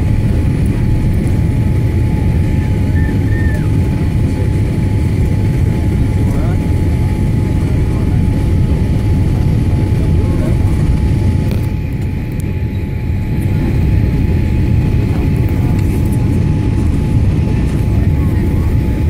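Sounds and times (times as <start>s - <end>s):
jet engine rumble in cabin: 0.0s - 19.0s.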